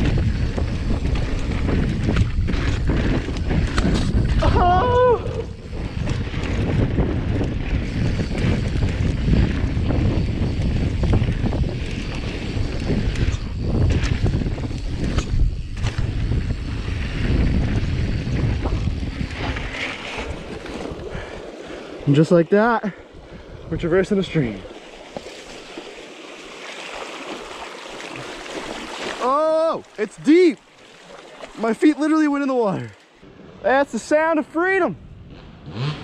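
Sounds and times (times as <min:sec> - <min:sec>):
bike rattles and knocks: 0:00.0 - 0:04.6, 0:05.6 - 0:21.3
wind buffeting the microphone: 0:00.0 - 0:26.0.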